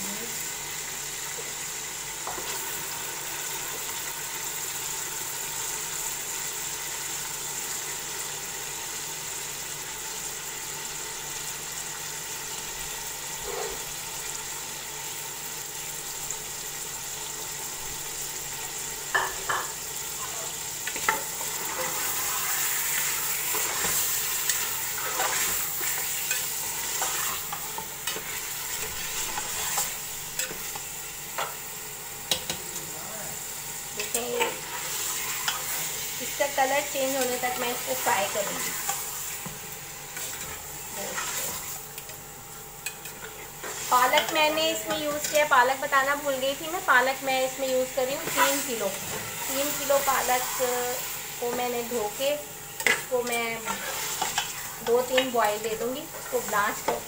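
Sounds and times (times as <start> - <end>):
meat sizzling in hot oil: 0.0 - 57.0
spatula scraping a pot: 21.0 - 30.6, 53.6 - 55.0.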